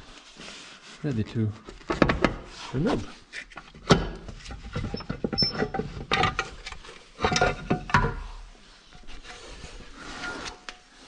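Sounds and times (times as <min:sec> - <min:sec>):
metal parts knocking and clattering: 0:03.7 - 0:08.2.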